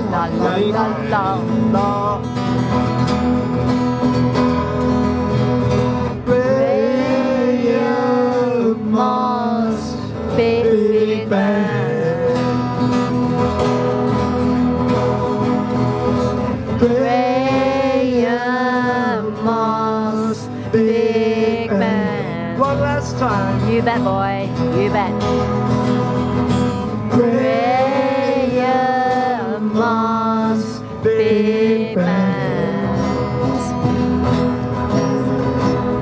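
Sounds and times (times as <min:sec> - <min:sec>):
acoustic guitars strumming: 0:00.0 - 0:36.0
voices singing: 0:06.1 - 0:13.2, 0:16.6 - 0:24.2, 0:27.0 - 0:34.0.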